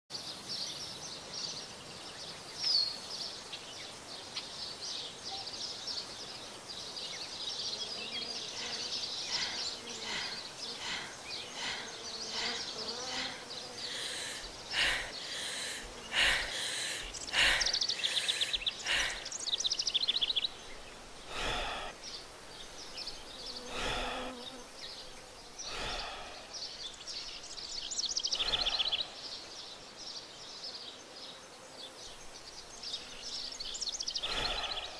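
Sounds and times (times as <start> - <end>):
small creatures chirping and trilling: 8.6 - 20.5, 28.2 - 29.2, 34.1 - 34.9.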